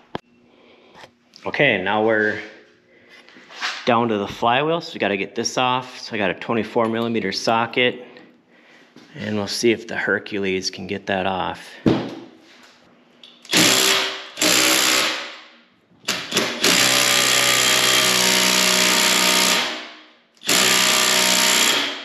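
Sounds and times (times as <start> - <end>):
impact driver hammering on nut: 13.5 - 15.3, 16.1 - 22.0.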